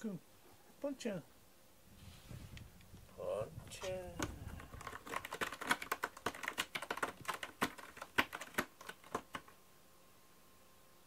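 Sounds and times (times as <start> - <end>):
cat scratching cardboard: 3.9 - 9.5.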